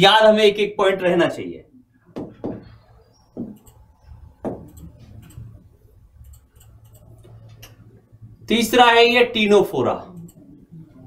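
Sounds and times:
dull knocks: 0:02.2 - 0:02.7, 0:03.4 - 0:03.6
faint clicks: 0:03.5 - 0:05.6, 0:06.2 - 0:07.9, 0:10.1 - 0:11.0.

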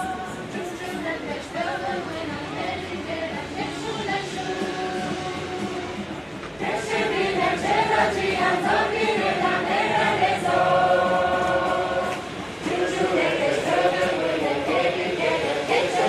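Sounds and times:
mixed choir singing: 0:00.0 - 0:16.0.

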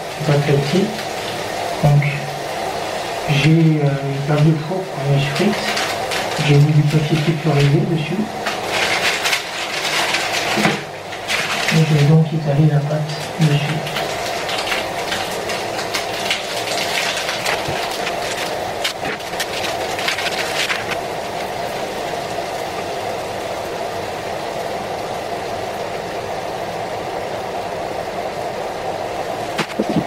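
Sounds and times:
mechanical hum: 0:00.0 - 0:30.0
paper wrapping crackling: 0:03.4 - 0:23.4, 0:29.5 - 0:30.0.

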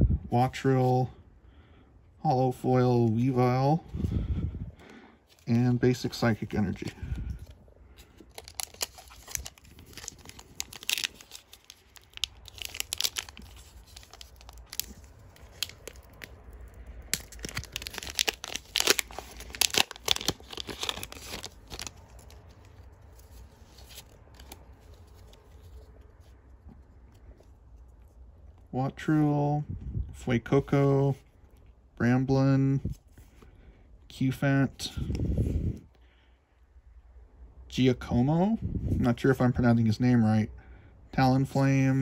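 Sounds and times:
foil wrapper tearing and crinkling: 0:08.1 - 0:25.6.

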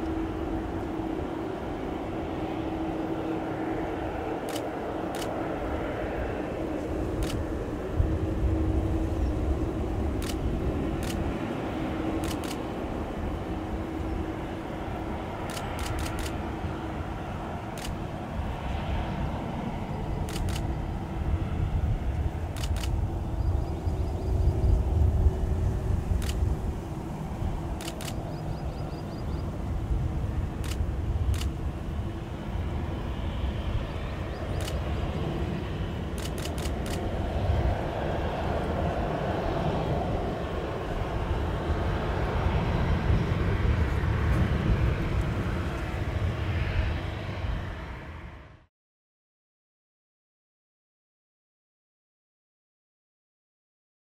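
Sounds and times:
jet engines rumbling: 0:00.0 - 0:48.7
sharp clicks: 0:04.5 - 0:05.3, 0:07.2 - 0:07.4, 0:10.2 - 0:10.4, 0:11.0 - 0:11.3, 0:12.2 - 0:12.7, 0:15.5 - 0:16.4, 0:20.3 - 0:20.7, 0:22.6 - 0:23.0, 0:26.2 - 0:26.4, 0:27.8 - 0:28.3, 0:30.6 - 0:31.5, 0:34.6 - 0:34.8, 0:36.2 - 0:37.0.

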